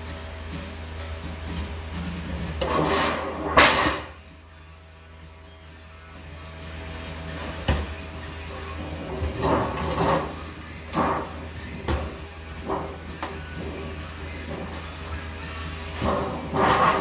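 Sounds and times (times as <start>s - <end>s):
steady low hum: 0.0s - 17.0s
sheet metal scraping and knocking: 2.6s - 4.1s, 8.8s - 14.8s, 16.0s - 17.0s
sheet metal clanking: 2.6s - 4.2s, 15.9s - 17.0s.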